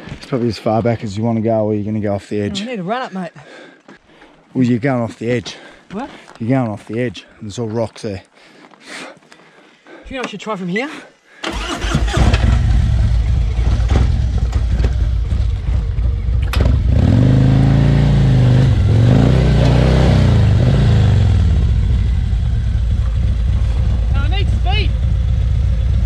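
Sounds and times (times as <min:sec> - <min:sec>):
motorcycle engine revving: 0:11.5 - 0:26.0.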